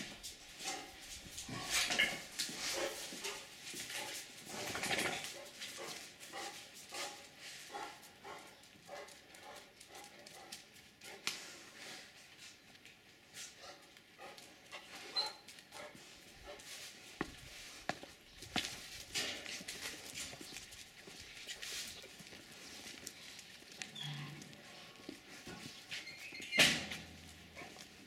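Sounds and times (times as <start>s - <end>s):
dogs barking: 2.6s - 11.2s.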